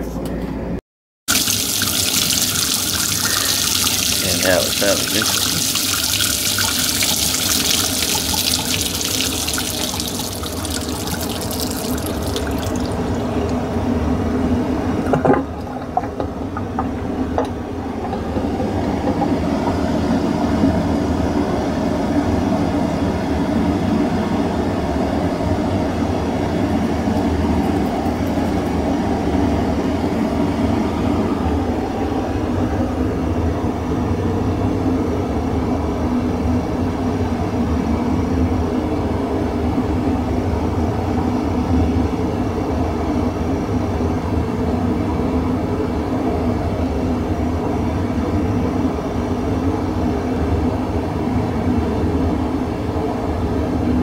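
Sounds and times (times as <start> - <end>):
water gushing into metal sink: 1.3 - 13.8
dishwasher humming: 1.3 - 24.2, 24.9 - 34.6.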